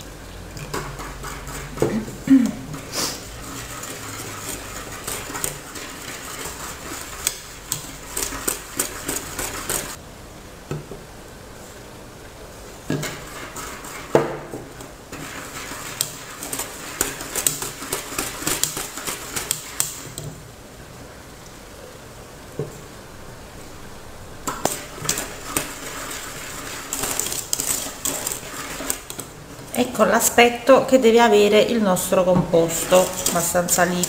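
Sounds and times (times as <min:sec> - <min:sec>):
whisk clattering in a steel pot: 0:00.6 - 0:10.0, 0:12.9 - 0:20.2, 0:24.5 - 0:29.8, 0:32.6 - 0:34.0.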